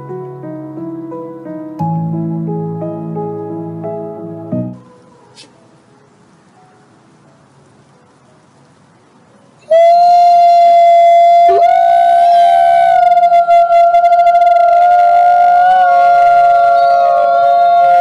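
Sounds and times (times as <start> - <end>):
wolves howling: 4.8 - 5.7, 9.7 - 18.0.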